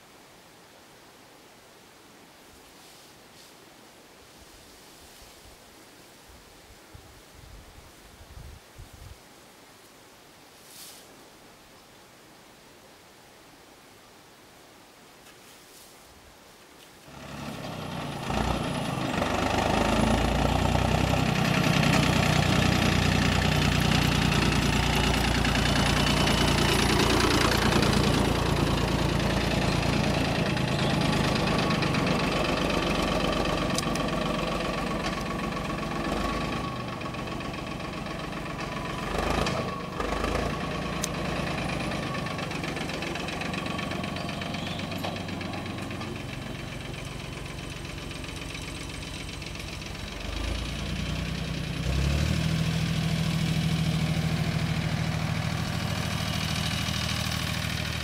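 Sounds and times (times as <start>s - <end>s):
tractor engine running: 17.1s - 58.0s.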